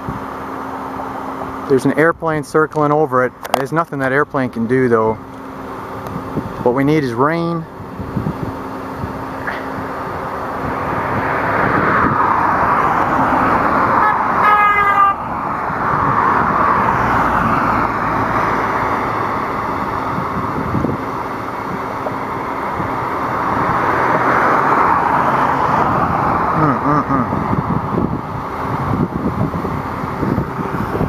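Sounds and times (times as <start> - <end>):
passing road traffic: 0.0 - 31.0
car horn toot: 14.0 - 15.2.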